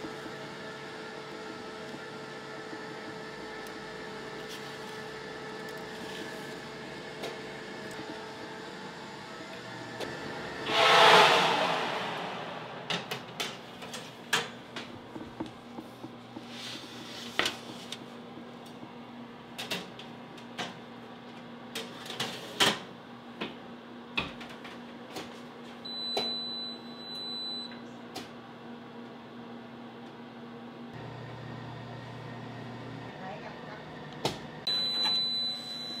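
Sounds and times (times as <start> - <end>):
oven fan humming: 0.0 - 10.6, 11.5 - 36.0
loud rush of noise: 10.1 - 13.8.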